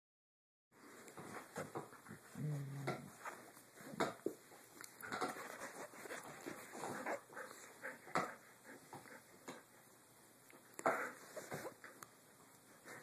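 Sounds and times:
dogs grunting and snuffling: 1.2s - 4.2s.

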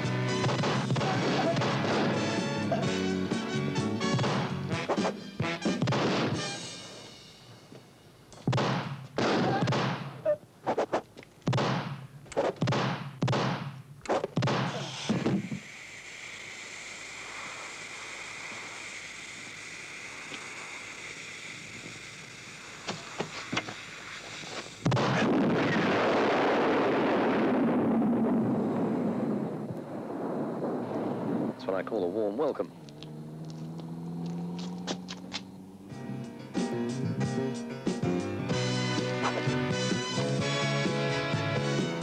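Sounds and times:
loud blast with sustained roar: 0.0s - 4.8s, 24.8s - 32.5s
gunfire and explosions: 0.1s - 2.7s, 4.0s - 6.6s, 8.4s - 10.4s, 11.4s - 15.4s, 24.8s - 28.5s
steady hiss: 6.4s - 9.2s, 13.6s - 26.6s, 34.4s - 42.0s.

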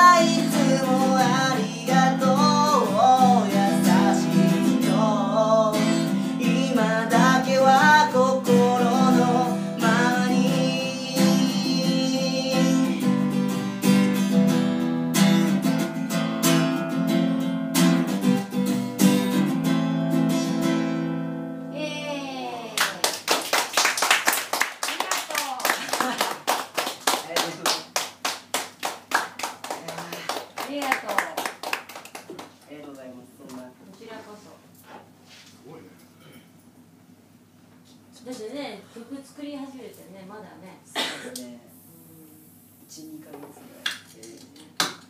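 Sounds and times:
person singing: 0.0s - 13.4s
strummed acoustic guitar: 0.0s - 21.6s
audience applause: 22.8s - 32.5s.

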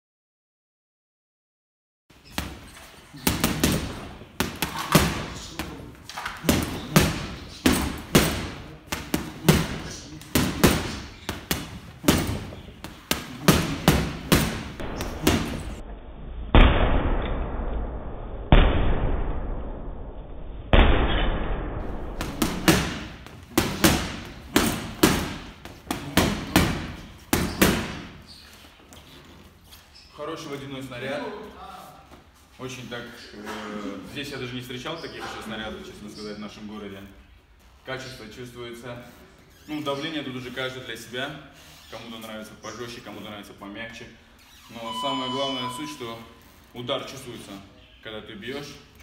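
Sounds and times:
punches slapping heavy bag: 3.2s - 15.8s, 21.9s - 28.2s.

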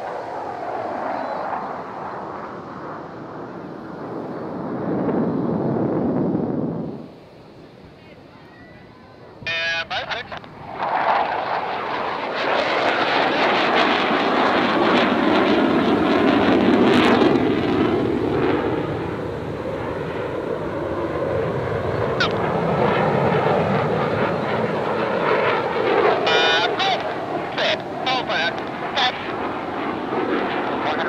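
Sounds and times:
jet engine roar: 0.0s - 8.3s, 9.0s - 31.0s.

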